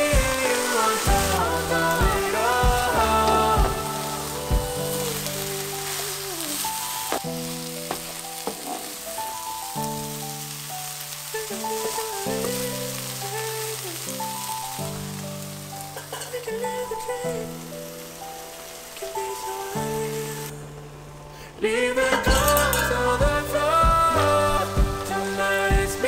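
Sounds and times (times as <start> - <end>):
background music with held chords: 0.0 - 13.8, 19.2 - 26.0
food sizzling in a frying pan: 0.0 - 20.8, 21.7 - 26.0.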